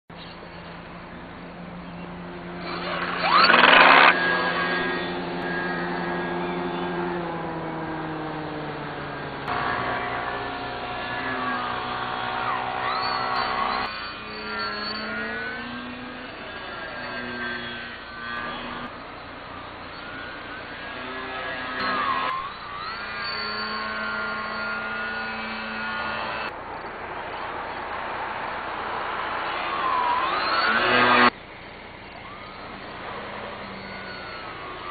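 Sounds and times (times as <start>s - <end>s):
model plane motor whine: 1.0s - 26.5s, 29.6s - 31.4s, 32.0s - 34.9s.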